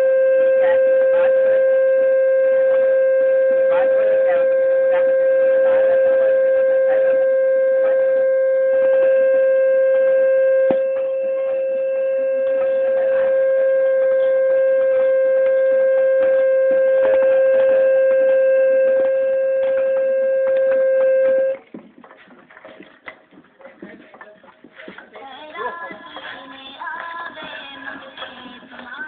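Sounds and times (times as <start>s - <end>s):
loud steady humming tone: 0.0s - 22.0s
faint knocks and clatter: 21.6s - 26.4s.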